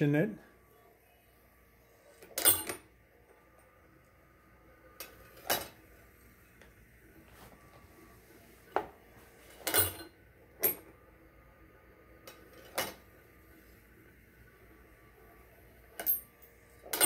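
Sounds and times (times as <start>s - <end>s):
brass cases clinking on metal: 9.7s - 10.8s.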